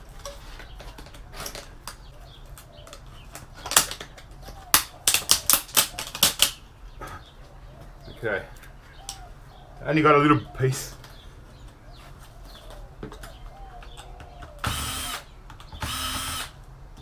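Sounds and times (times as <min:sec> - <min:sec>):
plastic parts clicking and snapping loose: 0:02.6 - 0:06.6.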